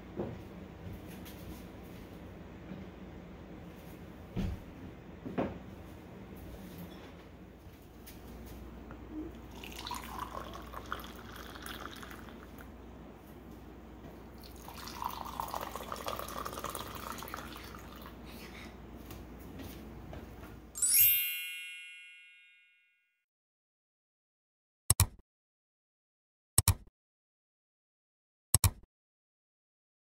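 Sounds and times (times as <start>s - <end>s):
drink pouring into cup: 9.3s - 12.7s, 14.3s - 18.2s
bright chime: 20.8s - 23.0s.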